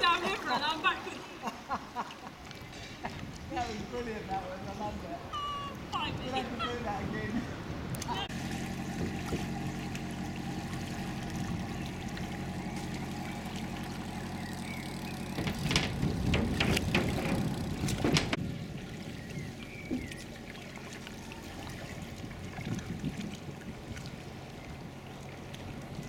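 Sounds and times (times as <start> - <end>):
low engine hum: 7.5 - 26.0
paddle splashing and dripping: 7.9 - 26.0.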